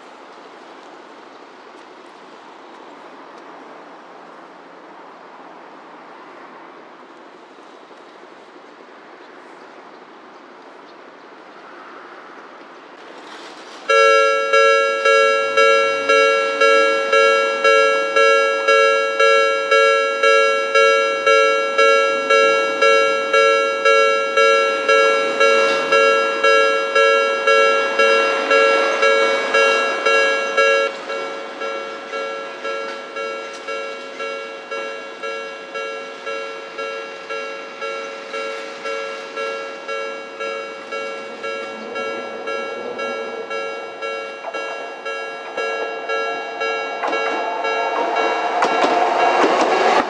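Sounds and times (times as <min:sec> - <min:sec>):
level crossing alarm bell: 0:13.9 - 0:50.0.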